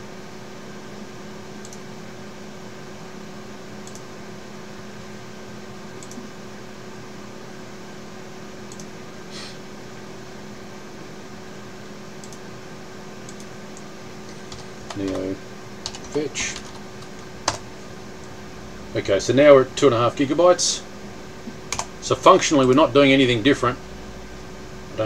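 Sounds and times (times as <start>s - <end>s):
computer fan hum and hiss: 0.0s - 25.0s
faint mouse clicks: 1.6s - 1.8s, 3.8s - 4.0s, 6.0s - 6.2s, 8.7s - 8.9s, 12.2s - 12.4s.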